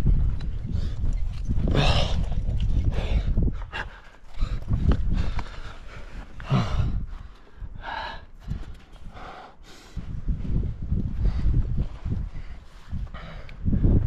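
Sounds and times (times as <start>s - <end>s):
low rumbling: 0.0s - 14.0s
man breathing hard and gasping: 1.6s - 10.2s.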